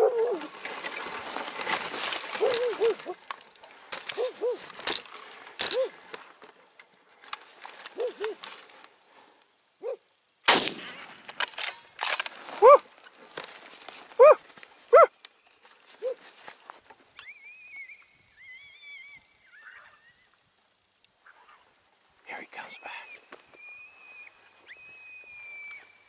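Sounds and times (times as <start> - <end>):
rustling noise: 0.0 - 9.4, 11.0 - 17.2
dog barking: 12.6 - 12.8, 14.2 - 15.1.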